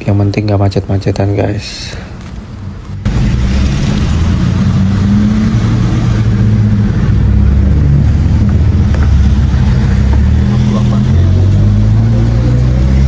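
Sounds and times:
car engine accelerating: 2.8 - 13.0.

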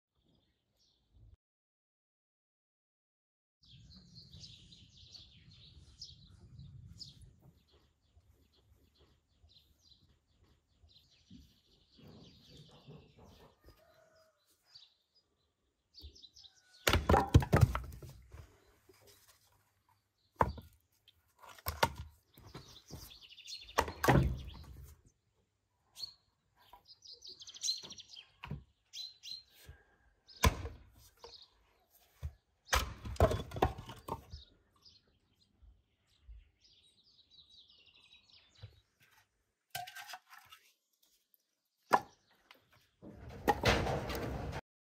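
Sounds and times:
small birds chirping: 3.6 - 17.0, 18.4 - 30.5, 31.1 - 39.4
axe splitting firewood: 16.8 - 18.4, 20.4 - 23.0, 23.7 - 24.9, 30.4 - 31.4, 32.1 - 34.4, 39.7 - 40.6, 41.8 - 42.2.

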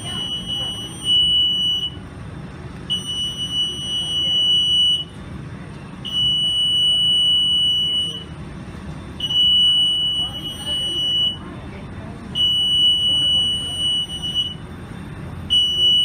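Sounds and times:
electronic alarm beeping: 0.0 - 2.0, 2.9 - 5.1, 6.0 - 8.4, 9.2 - 11.4, 12.4 - 14.7, 15.5 - 16.0.

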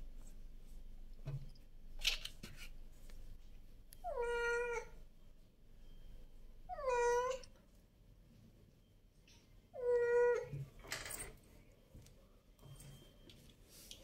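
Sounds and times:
cat meowing: 4.0 - 4.9, 6.7 - 7.5, 9.8 - 10.5.

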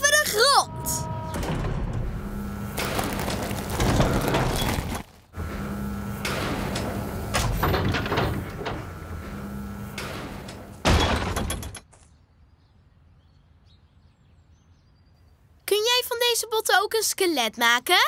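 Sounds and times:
motor hum: 0.0 - 11.7.

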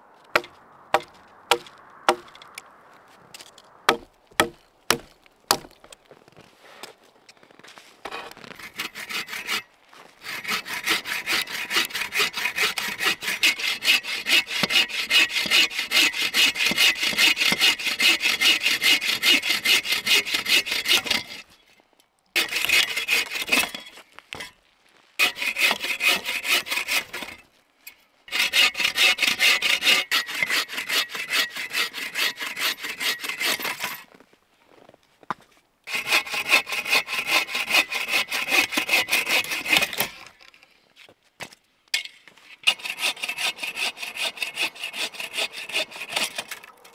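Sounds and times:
bow saw cutting log: 0.3 - 2.5, 3.9 - 5.7, 8.1 - 21.5, 22.4 - 23.8, 25.2 - 27.4, 28.3 - 34.0, 35.9 - 40.4, 42.5 - 46.9.

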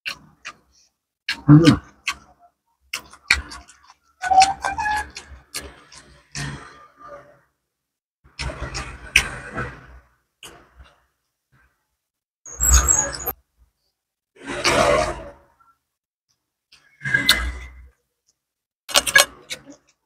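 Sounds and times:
wet chewing: 0.1 - 4.1.

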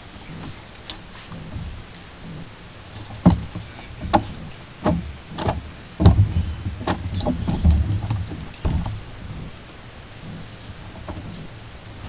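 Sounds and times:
deep rumble: 0.0 - 12.0
knocks on boat hull: 2.4 - 9.5.

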